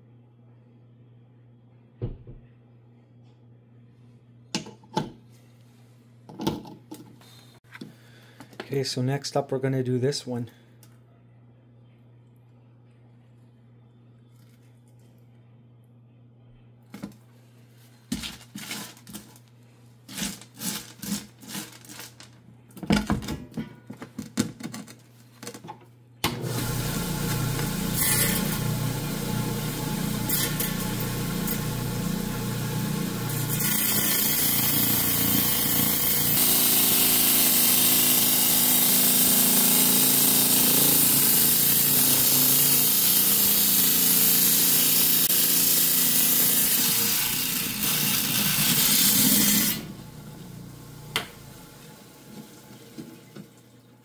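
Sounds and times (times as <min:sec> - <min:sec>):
diamond saw whirring: 0:26.3 - 0:51.8
saw blade cutting stone: 0:27.4 - 0:28.8, 0:33.3 - 0:49.9.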